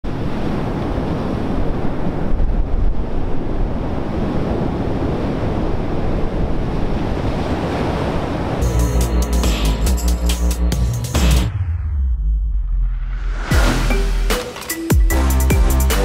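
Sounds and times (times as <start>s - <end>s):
wind buffeting microphone: 0.1s - 8.6s
heavy surf breaking: 0.1s - 9.2s.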